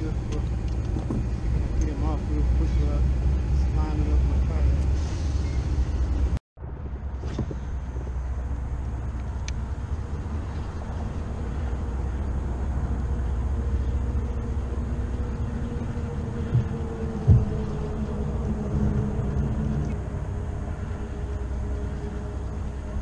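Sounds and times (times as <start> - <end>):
traffic rumble on bridge: 0.0 - 23.0
dull knocks: 16.5 - 17.8.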